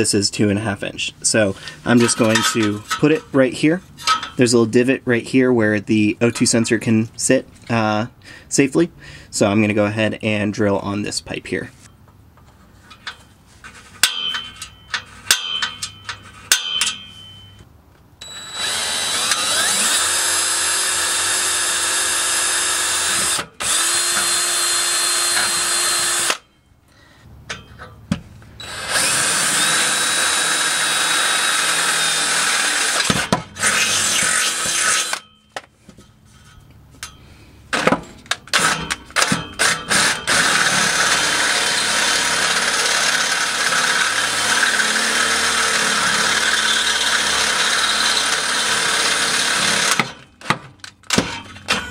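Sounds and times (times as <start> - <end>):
cordless drill boring into metal: 18.2 - 26.4, 28.6 - 35.2, 38.6 - 50.1.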